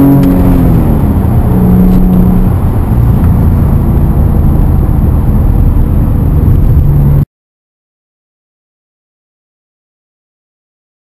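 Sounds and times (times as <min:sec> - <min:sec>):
muffled car engine running: 0:00.0 - 0:07.2.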